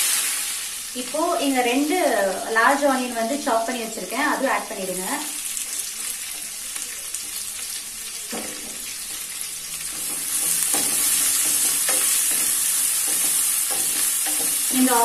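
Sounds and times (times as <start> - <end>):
onions sizzling in oil: 0.0 - 15.0
wooden spatula knocking pan: 9.9 - 15.0.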